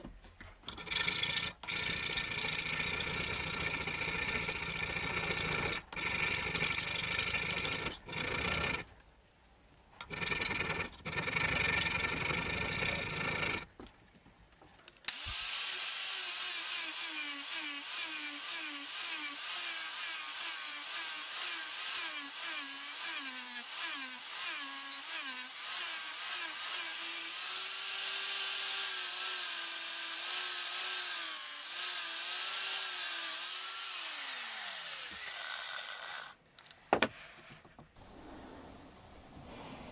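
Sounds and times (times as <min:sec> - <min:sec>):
angle grinder grinding steel: 0:15.1 - 0:36.4.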